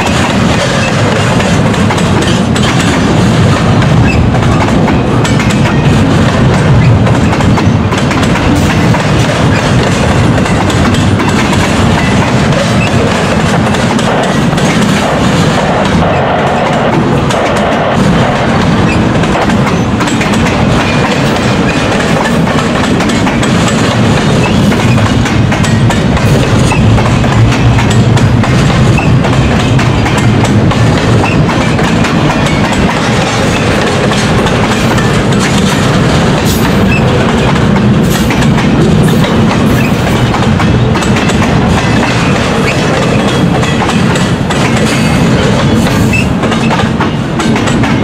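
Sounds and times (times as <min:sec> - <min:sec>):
freight train rumbling past: 0:00.0 - 0:48.0
wheels clattering on rails: 0:00.0 - 0:48.0.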